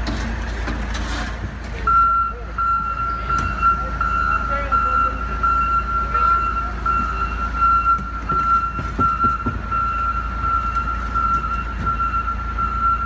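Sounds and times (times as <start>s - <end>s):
diesel engine rumble: 0.0s - 13.0s
reverse warning alarm: 1.9s - 13.0s
knocks: 8.0s - 9.7s.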